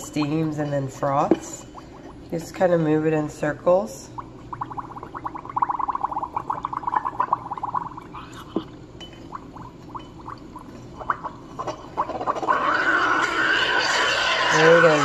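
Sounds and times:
milk bubbling pops: 0:04.2 - 0:08.7.

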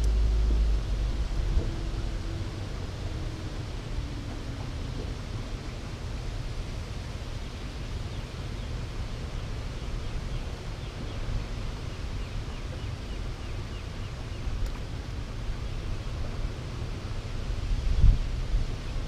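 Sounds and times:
churning river water rushing: 0:00.0 - 0:19.0
wind rumble on microphone: 0:00.0 - 0:19.0.

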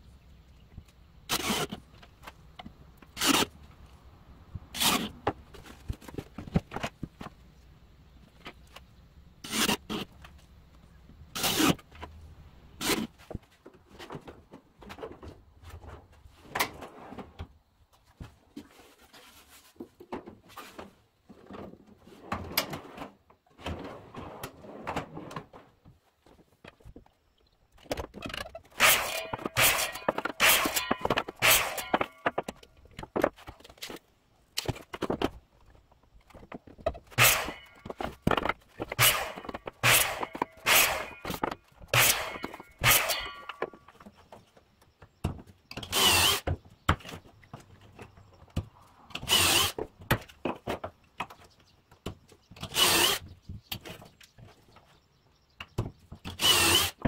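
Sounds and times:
cordless drill driving screws: 0:45.9 - 0:46.5, 0:49.2 - 0:49.8, 0:52.7 - 0:53.2, 0:56.3 - 0:57.0.

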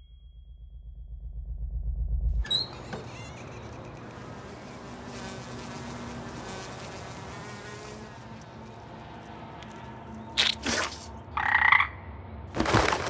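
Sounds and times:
low rumble: 0:00.0 - 0:02.7
high rising squeaks: 0:02.4 - 0:11.2
fly buzzing: 0:02.5 - 0:11.2.

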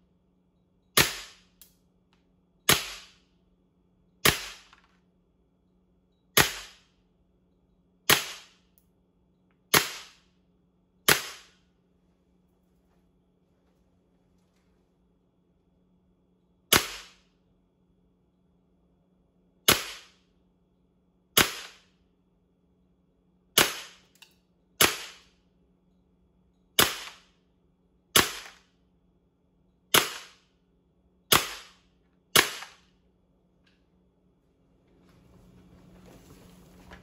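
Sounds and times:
airsoft pistol shots: 0:01.0 - 0:01.5, 0:02.7 - 0:03.2, 0:04.2 - 0:04.8, 0:06.4 - 0:06.9, 0:08.1 - 0:08.6, 0:09.7 - 0:10.3, 0:11.0 - 0:11.6, 0:16.7 - 0:17.3, 0:19.7 - 0:20.2, 0:21.4 - 0:21.9, 0:23.6 - 0:24.1, 0:24.8 - 0:25.3, 0:26.8 - 0:27.3, 0:28.1 - 0:28.7, 0:29.9 - 0:30.5, 0:31.3 - 0:32.9.

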